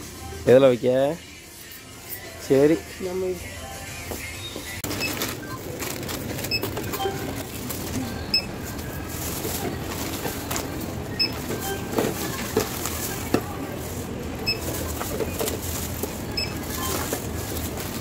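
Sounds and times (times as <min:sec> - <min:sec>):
plastic carrier bag rustling: 0:04.8 - 0:18.0
barcode scanner beeps: 0:06.4 - 0:07.6, 0:08.2 - 0:08.7, 0:11.1 - 0:12.5, 0:14.4 - 0:14.8, 0:16.3 - 0:17.1.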